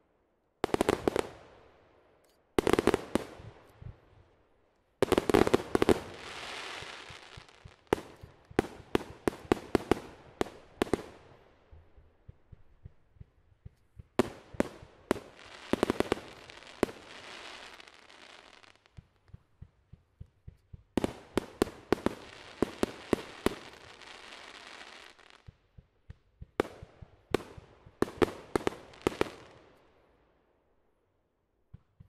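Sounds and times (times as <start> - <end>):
firework hiss: 5.5 - 7.6.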